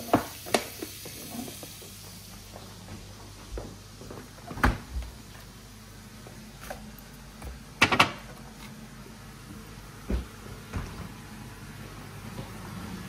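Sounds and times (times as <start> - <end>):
range hood fan hum: 0.0 - 13.0
kitchen knocks and clatters: 7.4 - 8.4.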